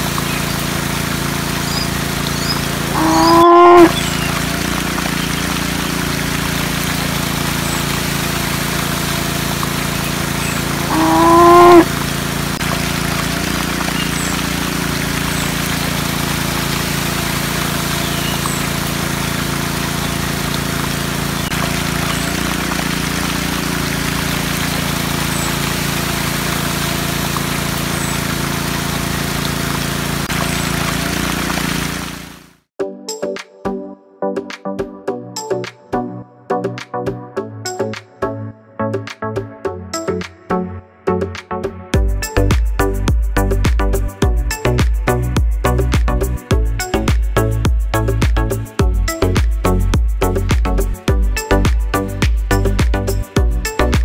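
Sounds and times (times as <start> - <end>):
water pump humming: 0.0 - 32.6
cow mooing: 2.9 - 4.0, 10.9 - 11.9.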